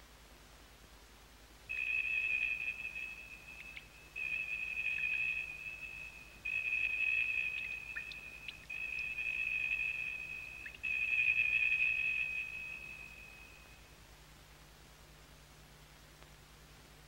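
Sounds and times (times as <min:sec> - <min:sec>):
high bell-like ringing tone: 0:01.7 - 0:13.9.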